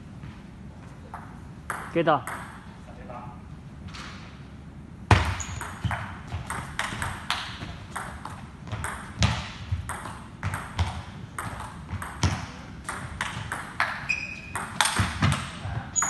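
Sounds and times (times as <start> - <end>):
ping-pong ball ticking: 1.2 - 2.6, 8.0 - 9.2, 11.4 - 15.0.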